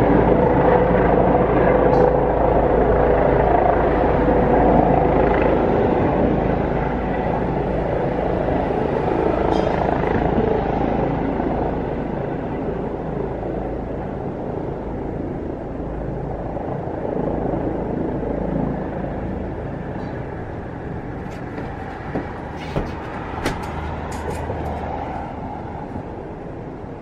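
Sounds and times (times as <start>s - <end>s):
helicopter engine and rotor: 0.0s - 27.0s.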